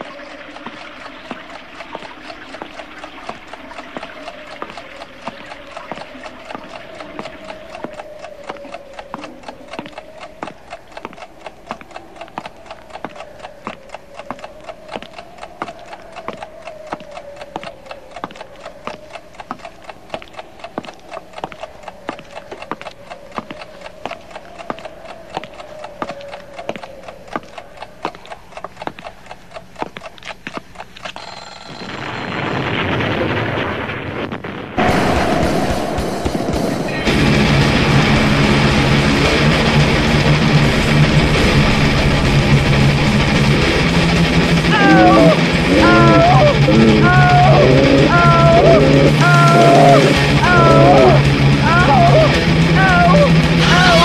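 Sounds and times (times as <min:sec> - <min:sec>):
clock ticking: 0:00.0 - 0:32.4, 0:34.8 - 0:54.0
rushing noise: 0:31.8 - 0:54.0
loud thud: 0:34.8 - 0:39.2.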